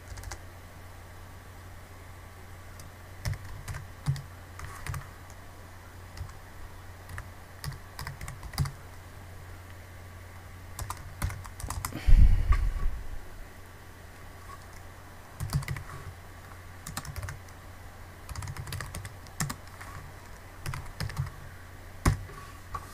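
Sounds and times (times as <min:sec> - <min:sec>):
keyboard typing: 0:00.0 - 0:00.4, 0:02.8 - 0:05.1, 0:06.2 - 0:06.4, 0:07.1 - 0:08.8, 0:10.8 - 0:11.9, 0:15.4 - 0:15.9, 0:16.8 - 0:17.6, 0:18.3 - 0:21.4
steady low hum: 0:00.0 - 0:22.9.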